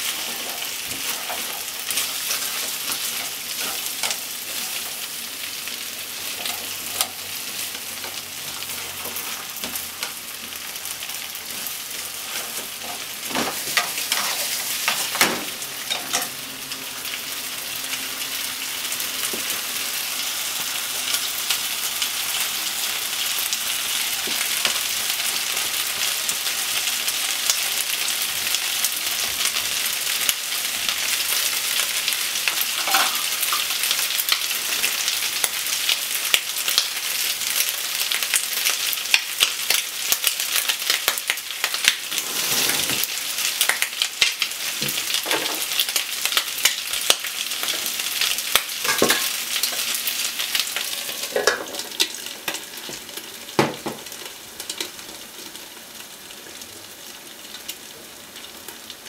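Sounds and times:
potatoes and bacon sizzling: 0:00.0 - 0:59.0.

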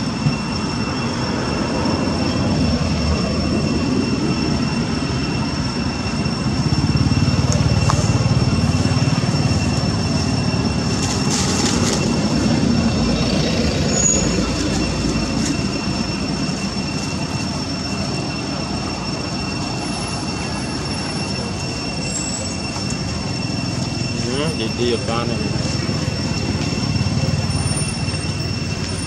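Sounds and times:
high-pitched insect drone: 0:00.0 - 0:29.0.

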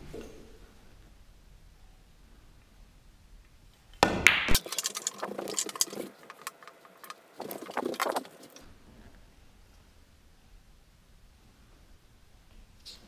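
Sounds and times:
cue striking ball with sharp crack: 0:04.0 - 0:04.6
pool balls clicking together: 0:04.0 - 0:08.6.

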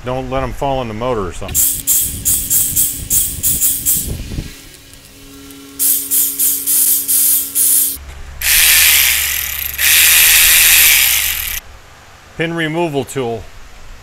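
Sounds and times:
pneumatic ratchet bursts: 0:01.5 - 0:04.4, 0:05.8 - 0:11.6
exhaust air hiss: 0:01.5 - 0:11.6.

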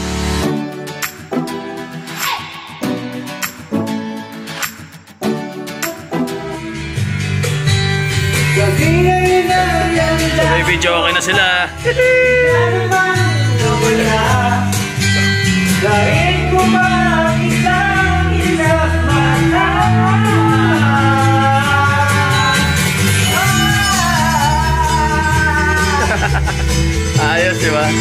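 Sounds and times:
guitar: 0:00.0 - 0:28.0
bass line: 0:06.5 - 0:28.0
man singing karaoke: 0:08.4 - 0:28.0.

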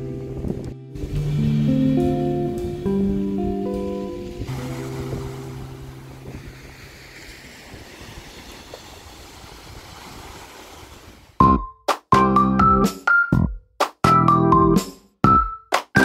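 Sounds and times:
background music: 0:00.0 - 0:06.4, 0:11.4 - 0:16.0
wind on microphone: 0:00.0 - 0:11.4
waves washing onto pebble beach: 0:03.8 - 0:11.4.

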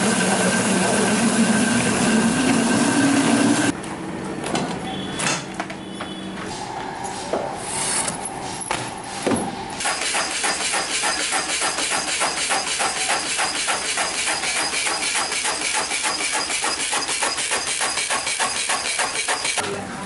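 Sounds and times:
cutting machine rapid clatter: 0:09.8 - 0:19.7.

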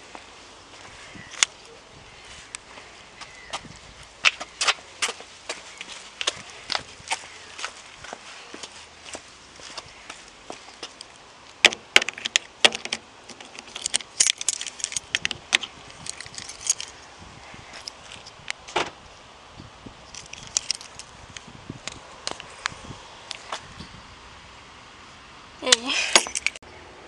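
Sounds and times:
car keys jangling: 0:13.3 - 0:15.3, 0:16.0 - 0:17.0, 0:20.1 - 0:21.1, 0:26.1 - 0:26.6.

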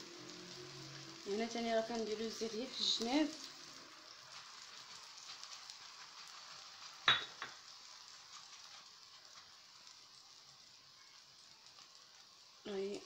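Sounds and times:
dough sizzling in oil: 0:00.0 - 0:13.0.

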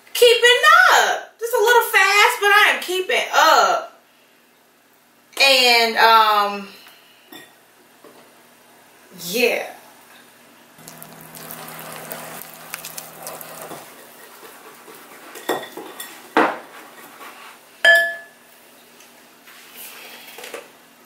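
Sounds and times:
whisk beating batter in glass bowl: 0:10.8 - 0:16.2.

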